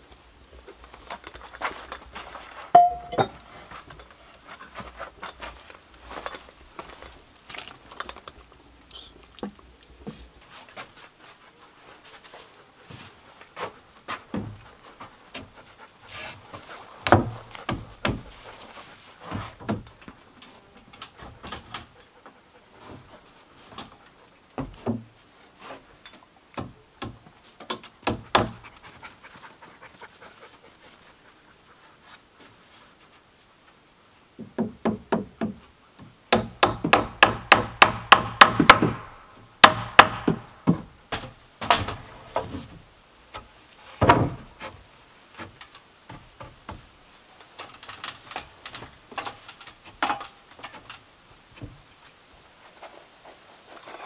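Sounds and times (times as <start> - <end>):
hammer striking nails into wood: 36.3 - 39.0, 39.6 - 40.5.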